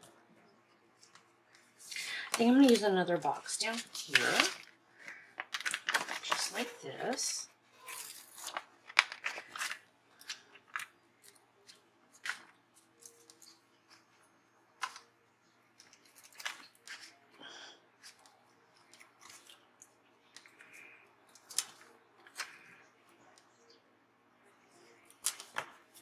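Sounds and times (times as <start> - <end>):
paper stickers rustling: 1.0 - 14.2.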